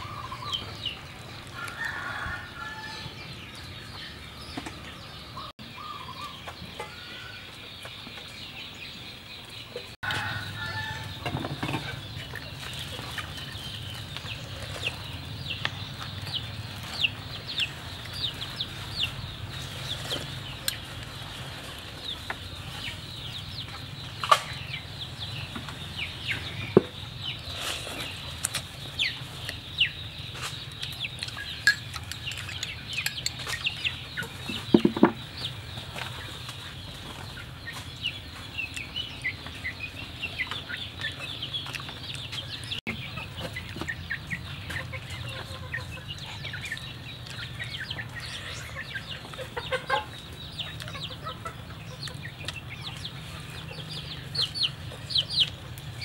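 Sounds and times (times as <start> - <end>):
chickens clucking: 0.0 - 56.0
chicks peeping: 0.0 - 56.0.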